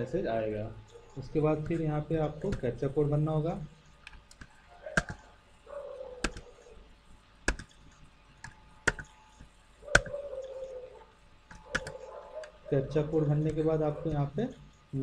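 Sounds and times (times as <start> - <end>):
keyboard key clicks: 4.1 - 5.3, 6.2 - 6.6, 7.5 - 7.8, 8.4 - 9.2, 9.9 - 10.2, 11.5 - 12.6.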